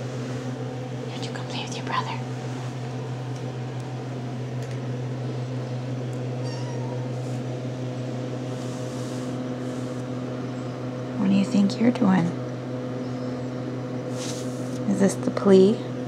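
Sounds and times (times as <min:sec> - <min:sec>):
steady low hum: 0:00.0 - 0:16.0
kitten mewing: 0:06.4 - 0:07.2.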